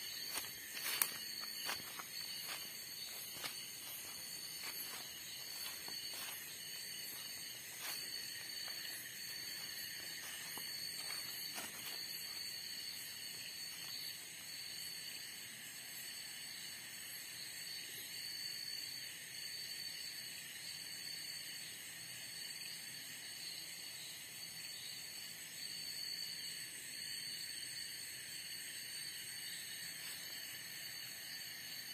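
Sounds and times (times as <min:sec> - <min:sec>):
footsteps rustling through grass: 0:00.0 - 0:14.0
insects trilling: 0:00.0 - 0:31.9.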